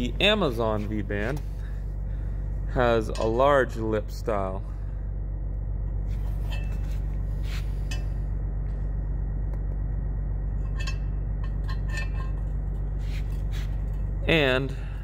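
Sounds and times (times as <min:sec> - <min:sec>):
low hum: 0:00.0 - 0:15.0
metal flanges clinking: 0:02.8 - 0:03.9, 0:06.2 - 0:07.1, 0:07.8 - 0:08.3, 0:10.5 - 0:14.8.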